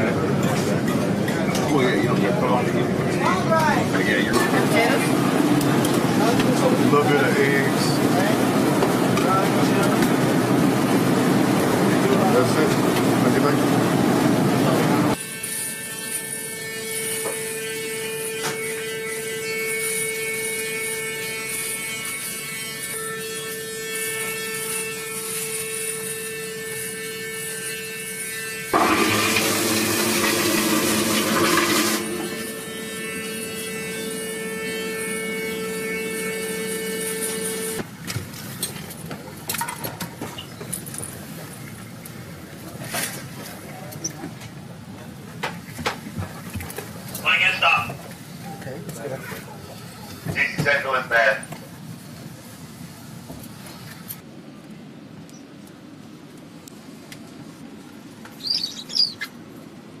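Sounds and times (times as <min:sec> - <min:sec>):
electric razor buzzing: 0:29.6 - 0:37.8.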